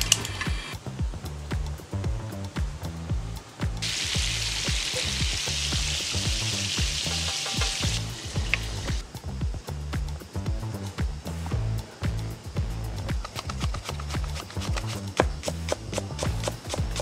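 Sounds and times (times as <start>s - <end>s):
background music with steady beat: 0.0s - 17.0s
meat sizzling in oil: 3.8s - 9.0s.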